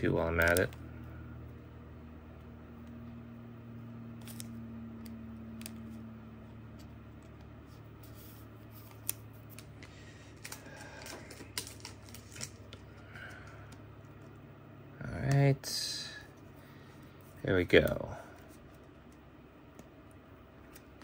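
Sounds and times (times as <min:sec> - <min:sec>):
low hum: 0:00.0 - 0:21.0
plastic clicks and rustles: 0:08.9 - 0:12.8.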